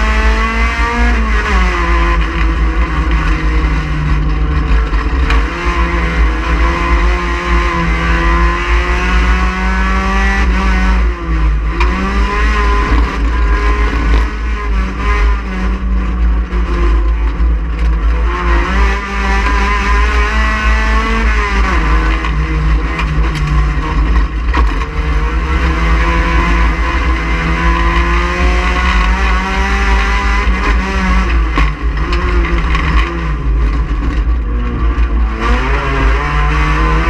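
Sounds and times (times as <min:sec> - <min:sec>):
race car engine at high revs: 0:00.0 - 0:37.0.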